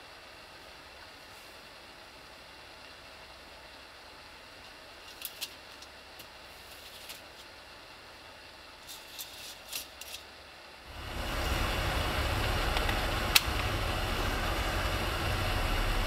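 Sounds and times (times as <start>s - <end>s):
low ship hum: 10.8s - 16.0s.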